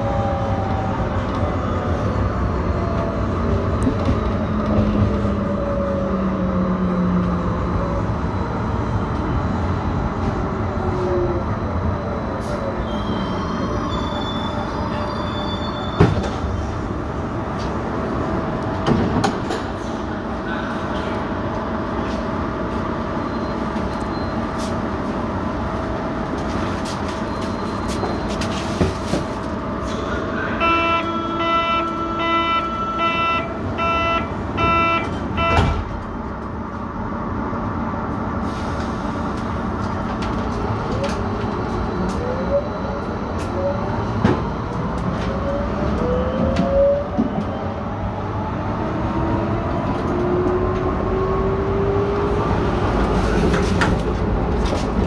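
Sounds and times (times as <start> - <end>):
train doors thumping shut: 15.9 - 16.8, 18.7 - 19.9, 34.6 - 36.1
beeping door-closing warning: 33.8 - 35.8.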